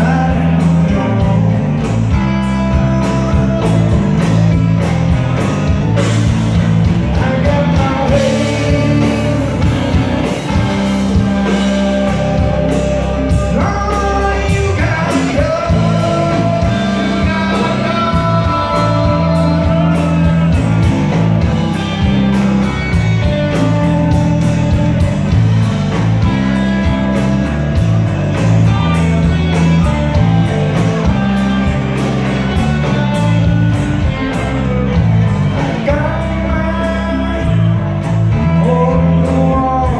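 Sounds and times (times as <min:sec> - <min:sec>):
live rock band playing: 0:00.0 - 0:39.9
person singing: 0:07.0 - 0:10.0, 0:11.8 - 0:21.2, 0:35.5 - 0:39.9.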